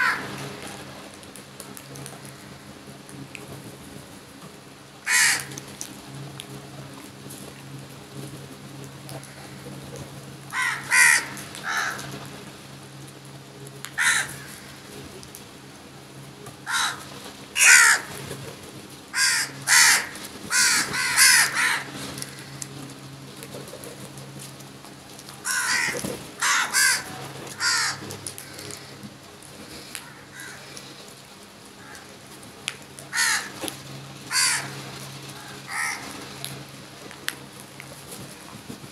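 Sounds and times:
crows cawing: 0.0s - 0.4s, 2.2s - 2.7s, 5.0s - 5.6s, 9.1s - 9.7s, 10.5s - 12.3s, 13.9s - 14.9s, 16.6s - 18.3s, 19.1s - 22.7s, 25.4s - 29.1s, 29.7s - 31.1s, 31.8s - 32.2s, 33.0s - 33.7s, 34.3s - 36.2s.

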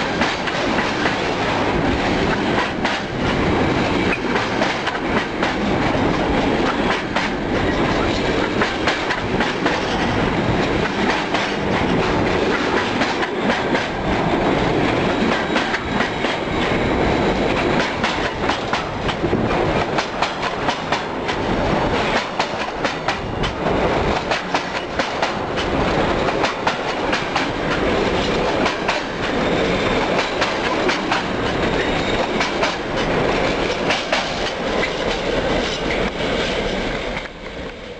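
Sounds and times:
train wheels clattering over rail joints: 0.0s - 37.4s.

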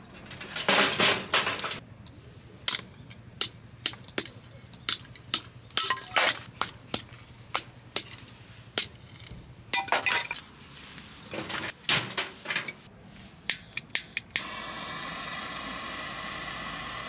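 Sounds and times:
hard objects clinking and knocking: 2.7s - 10.4s.

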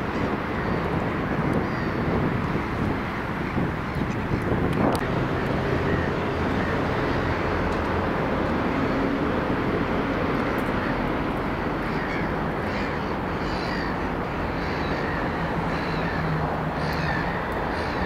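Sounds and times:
distant road traffic rumble: 0.0s - 18.0s
bird calls: 11.8s - 18.0s.

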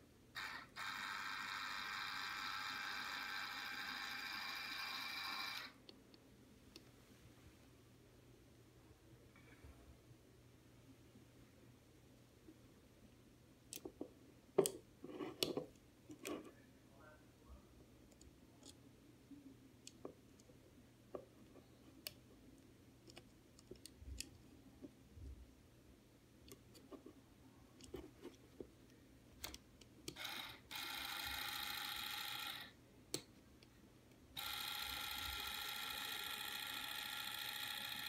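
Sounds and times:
actuator motor whine: 0.4s - 5.8s, 30.2s - 32.7s, 34.4s - 38.0s.

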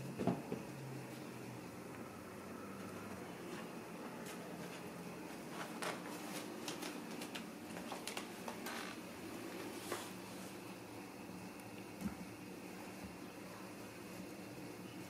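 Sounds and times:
dried petals crackling and rustling: 2.8s - 8.8s.

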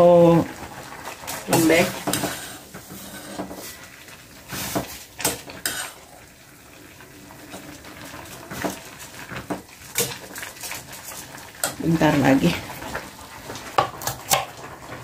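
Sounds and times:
boiling water: 0.0s - 15.0s.

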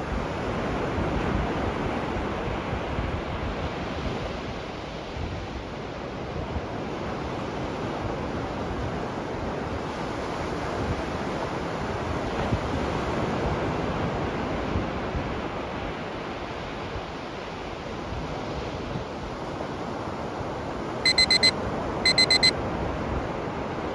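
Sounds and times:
high electronic timer beeps: 21.1s - 21.5s, 22.1s - 22.5s.

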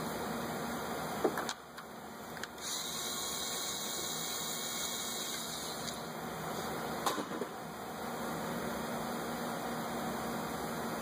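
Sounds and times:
electric ratchet whirring: 2.6s - 6.0s.

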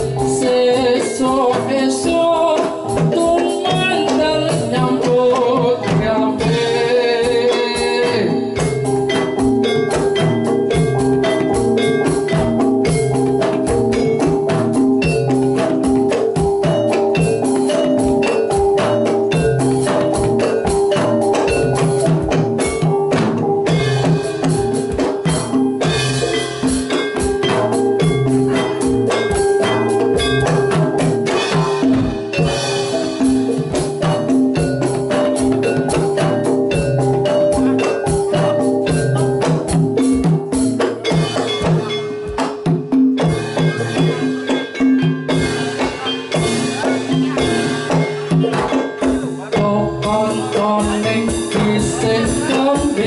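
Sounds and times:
hand drum busy rhythm: 0.0s - 53.0s
metallophones and gongs: 0.0s - 53.0s.

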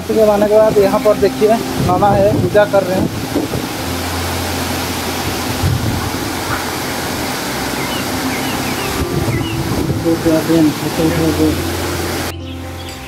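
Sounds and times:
stream water rushing over stone: 0.0s - 13.0s.

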